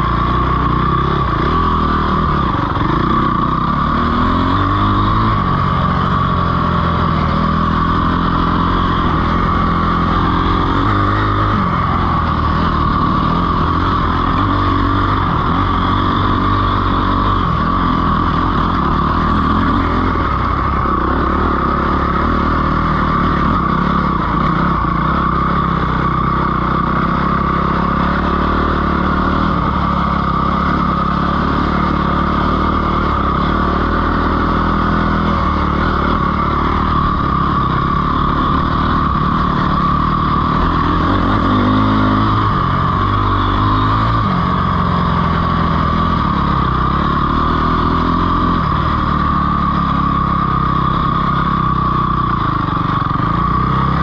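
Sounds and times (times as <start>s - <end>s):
dirt bike engine running: 0.0s - 54.0s.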